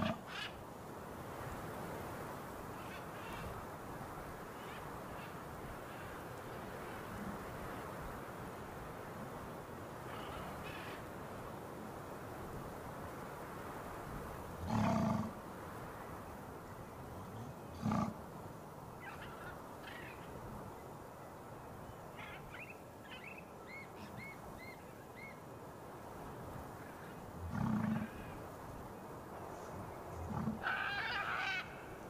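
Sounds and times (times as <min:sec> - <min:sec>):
background hiss: 0:00.0 - 0:32.0
harsh animal calls: 0:27.5 - 0:28.3, 0:30.2 - 0:31.8.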